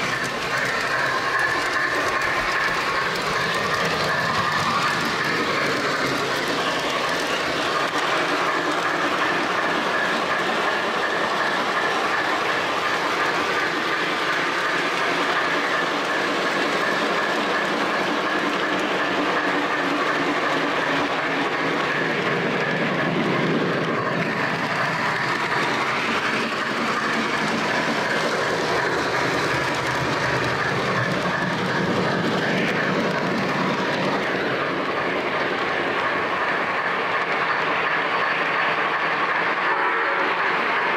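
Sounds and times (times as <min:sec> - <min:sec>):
model train wheels rumbling: 0:00.0 - 0:40.9.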